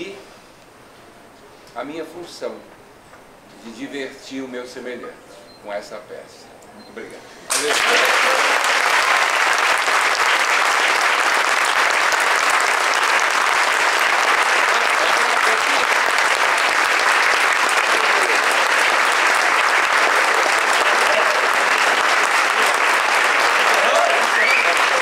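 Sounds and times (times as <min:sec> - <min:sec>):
audience applauding: 0:07.5 - 0:25.0.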